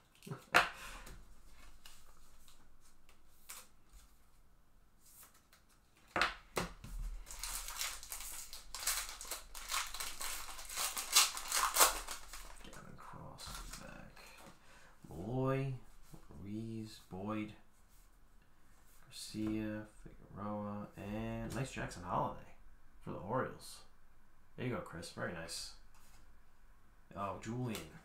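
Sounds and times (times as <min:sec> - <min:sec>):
foil wrapper tearing and crinkling: 0:07.2 - 0:12.8.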